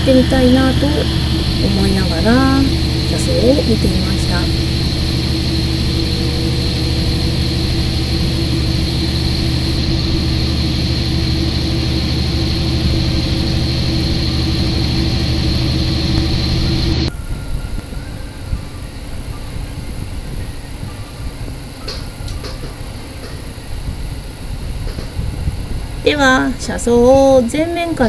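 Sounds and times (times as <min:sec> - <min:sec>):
diesel engine droning: 0:00.0 - 0:18.5
train running noise inside carriage: 0:00.0 - 0:28.0.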